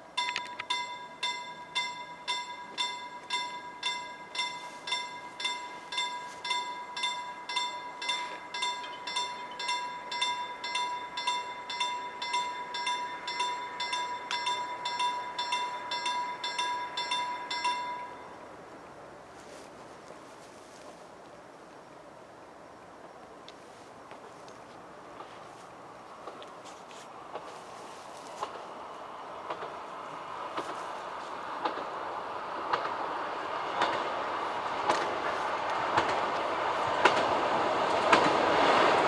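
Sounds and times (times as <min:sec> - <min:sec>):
level crossing warning bell: 0:00.0 - 0:18.6.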